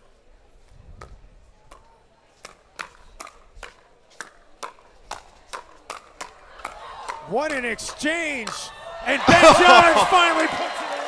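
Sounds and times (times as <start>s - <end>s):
paddles hitting plastic ball: 1.0s - 10.0s.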